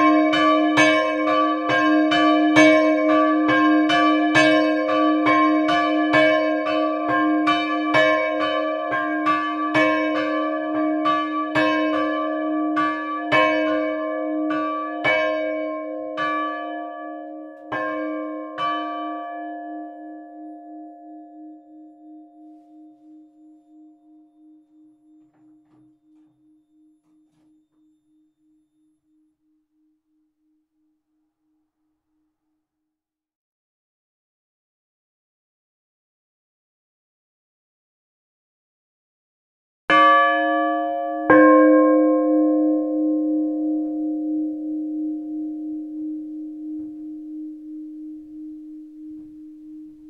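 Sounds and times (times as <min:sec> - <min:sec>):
church bells ringing: 0:00.0 - 0:28.6, 0:39.9 - 0:50.0.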